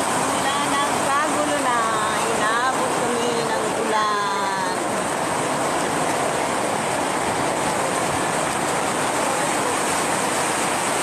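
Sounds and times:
rain on a tent canopy: 0.0 - 11.0.

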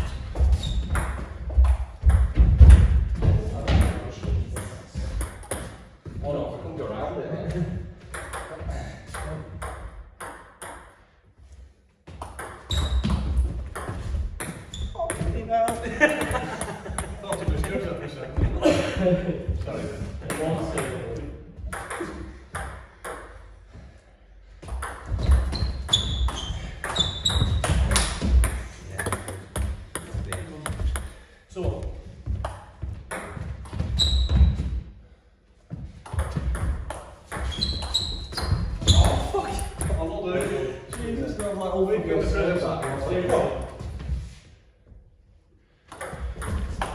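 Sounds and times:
footsteps on wooden floor: 0.1 - 3.6
table tennis ball hits and bounces: 0.6 - 3.0, 4.6 - 5.8, 8.0 - 11.0, 12.1 - 17.8, 21.7 - 23.4, 24.6 - 31.1, 32.4 - 34.5, 36.0 - 41.6, 45.9 - 46.9.

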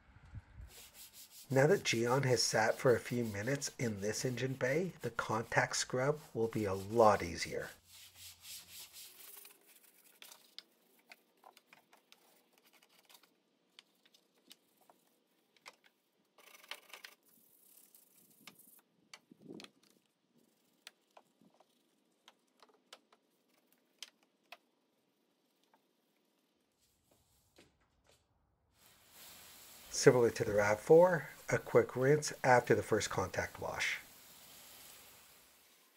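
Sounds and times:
brush scrubbing engine parts: 0.8 - 10.6, 29.9 - 35.9.

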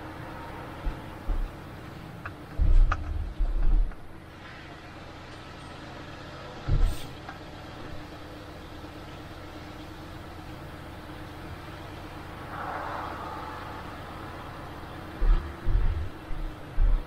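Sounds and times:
car interior hum: 0.0 - 17.0
heavy low thumps: 13.6 - 17.0.

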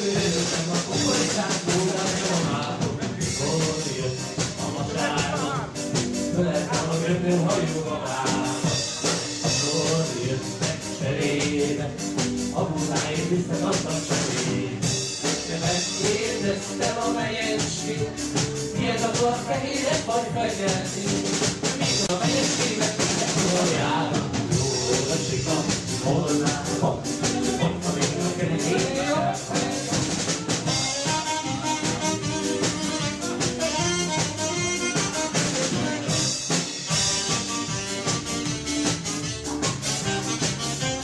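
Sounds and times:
fast drum beat: 0.0 - 41.0
live band dance music: 0.0 - 41.0.

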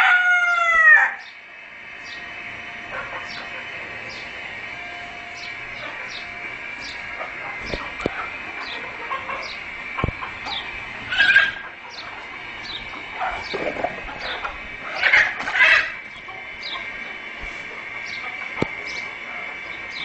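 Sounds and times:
harsh chicken squawks: 0.0 - 1.3, 7.2 - 16.9
chickens calling: 0.0 - 20.0
steady high hum: 0.0 - 20.0.

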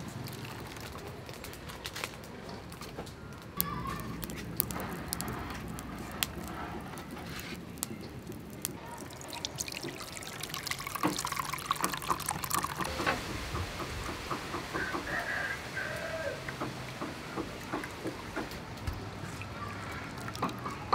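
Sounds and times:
liquid pouring into bowl: 0.0 - 1.2, 8.6 - 13.0.

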